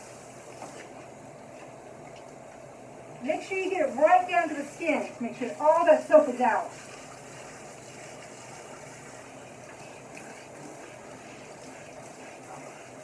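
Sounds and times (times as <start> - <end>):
shower water spraying: 3.2 - 13.0.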